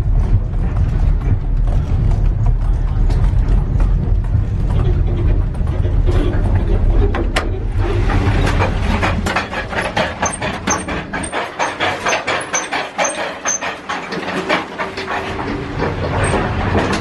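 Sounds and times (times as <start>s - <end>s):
deep rumble: 0.0s - 11.4s
train carriage rattling and clacking: 0.0s - 17.0s.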